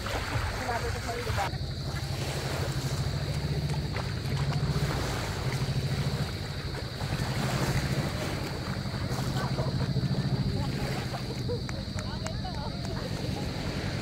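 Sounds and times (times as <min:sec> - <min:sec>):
small waves washing on sand: 0:00.0 - 0:14.0
engine chugging: 0:00.8 - 0:14.0.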